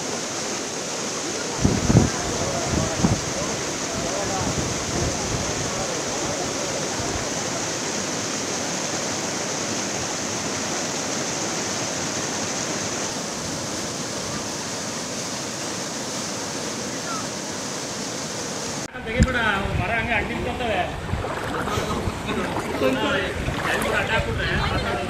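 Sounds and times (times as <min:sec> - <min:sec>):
floodwater rushing and churning: 0:00.0 - 0:25.0.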